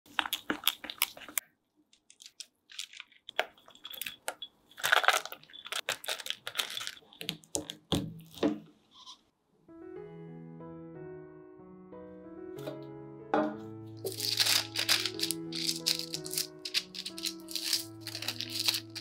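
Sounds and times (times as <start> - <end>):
knife thud on wooden board: 13.4 - 13.6
nuts tumbling onto batter: 14.0 - 19.0.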